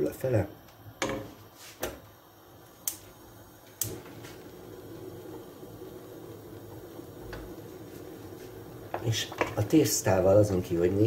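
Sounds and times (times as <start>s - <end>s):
faint steady hum: 0.0s - 11.0s
kitchen things clicking and knocking: 8.9s - 9.6s.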